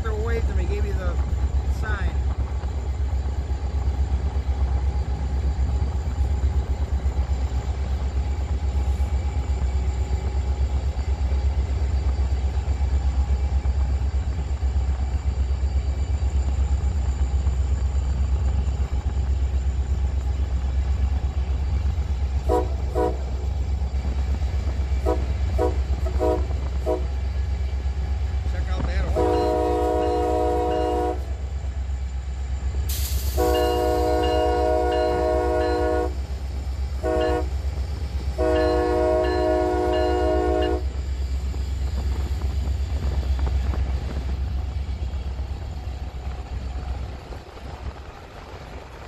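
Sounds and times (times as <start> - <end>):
freight train rumble: 0.0 - 49.0
locomotive air horn toots: 22.4 - 23.3, 25.0 - 27.2, 29.1 - 31.4, 33.3 - 36.2, 37.0 - 37.6, 38.4 - 40.9.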